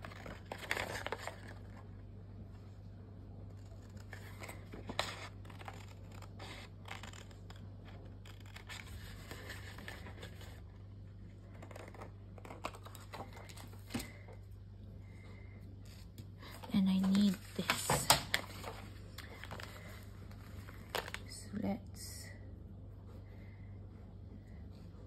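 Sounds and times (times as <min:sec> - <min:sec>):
paper rustling: 0:00.0 - 0:01.9, 0:03.5 - 0:14.4, 0:15.8 - 0:21.3
scissors snipping paper: 0:03.6 - 0:10.5.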